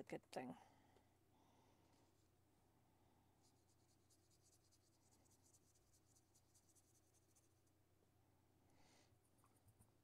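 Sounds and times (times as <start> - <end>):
paintbrush strokes on paper: 3.4 - 7.8.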